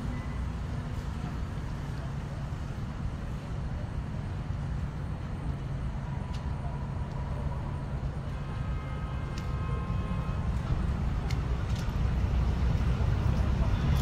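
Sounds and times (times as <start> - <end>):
faint steady high tone: 0.0 - 0.6
distant traffic rumble: 0.0 - 14.0.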